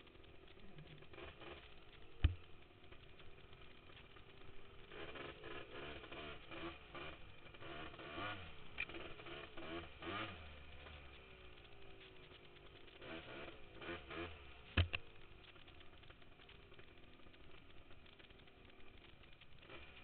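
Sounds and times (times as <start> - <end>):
quad engine revving: 0.0 - 3.5, 4.3 - 14.9.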